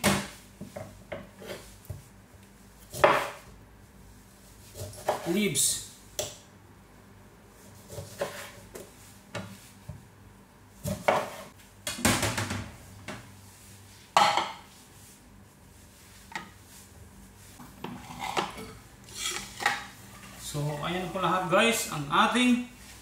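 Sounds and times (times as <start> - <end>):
knife and dishes clattering: 17.8 - 20.4.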